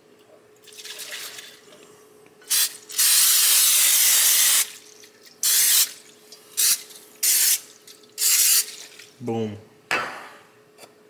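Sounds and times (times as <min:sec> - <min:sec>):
aerosol spray can hissing: 0:02.5 - 0:04.7, 0:05.4 - 0:05.9, 0:06.6 - 0:07.6, 0:08.2 - 0:08.7.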